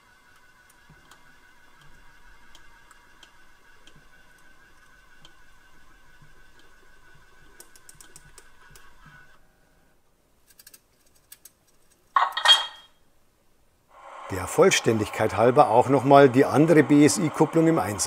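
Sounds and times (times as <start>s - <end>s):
model locomotive drive running: 0.0s - 9.4s, 14.0s - 18.0s
small clicks: 7.5s - 8.9s, 10.4s - 12.2s.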